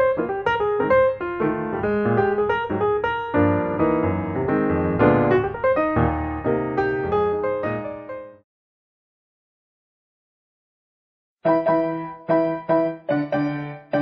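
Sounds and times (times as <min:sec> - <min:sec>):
piano music: 0:00.0 - 0:08.4, 0:11.4 - 0:14.0.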